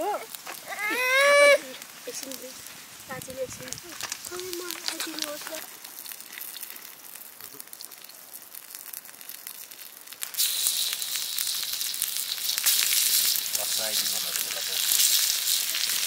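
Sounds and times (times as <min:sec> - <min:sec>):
meat sizzling on hot stone: 0:00.0 - 0:16.0
wood fire crackling: 0:00.0 - 0:16.0.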